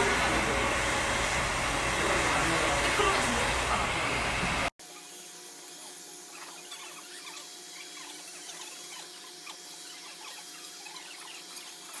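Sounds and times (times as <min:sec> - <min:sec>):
hair dryer blowing: 0:00.0 - 0:06.4
rapid squeaky chirps: 0:06.2 - 0:12.0.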